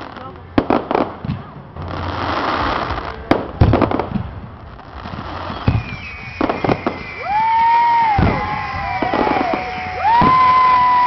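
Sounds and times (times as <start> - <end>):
fireworks bangs with crackling: 0.0 - 11.0
high thin firework whistles: 5.0 - 11.0.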